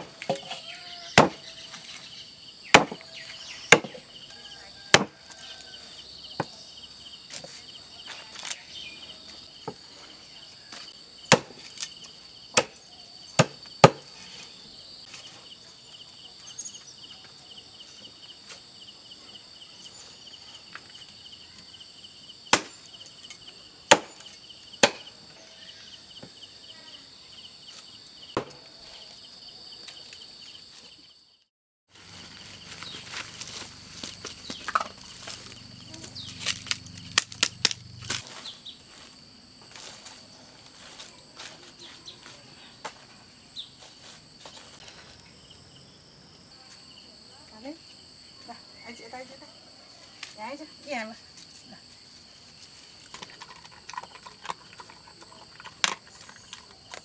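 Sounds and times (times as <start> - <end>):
insects chirping: 0.0 - 57.0
knife chopping on wooden block: 1.2 - 1.4, 2.8 - 3.1, 3.7 - 4.0, 4.9 - 5.2, 13.4 - 14.1, 24.8 - 25.1, 28.4 - 28.6.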